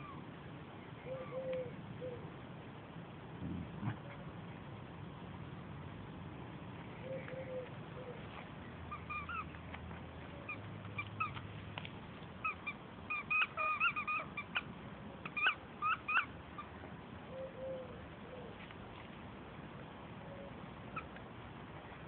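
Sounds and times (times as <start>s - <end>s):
squeaky dog toy squeaking: 8.9s - 9.5s, 12.4s - 16.7s.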